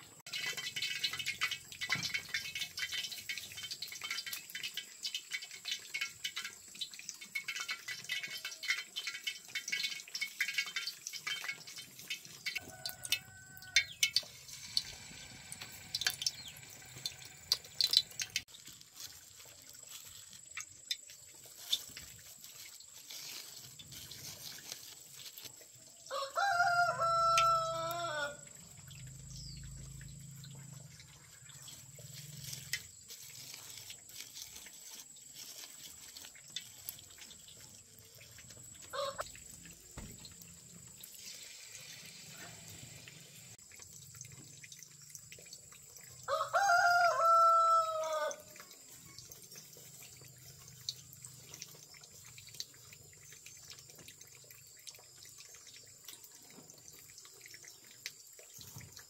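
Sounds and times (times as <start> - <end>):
rooster crowing: 12.6 - 14.0, 26.1 - 28.5, 38.9 - 39.2, 46.3 - 48.5
faint scattered clicks: 15.8 - 18.5.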